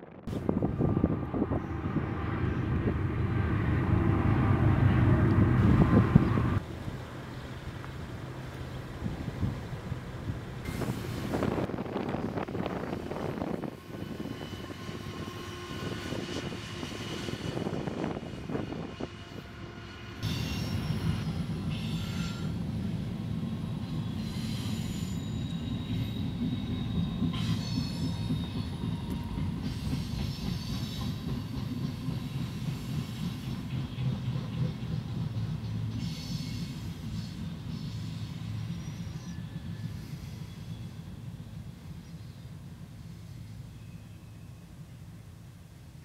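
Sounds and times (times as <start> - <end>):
train wheels rumbling on rails: 0.0 - 43.9
high wheel squealing: 24.0 - 31.2.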